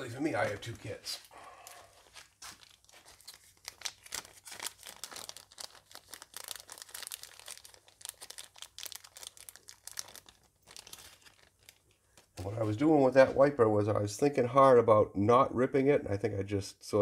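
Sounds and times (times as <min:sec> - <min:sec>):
plastic bag crinkling: 0:00.4 - 0:12.8.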